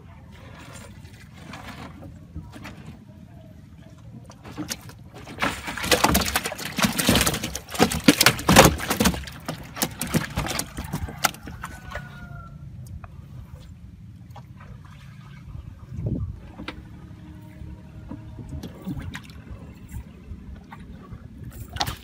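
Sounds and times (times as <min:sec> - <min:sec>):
fish slapping against boat hull: 0:04.5 - 0:12.0.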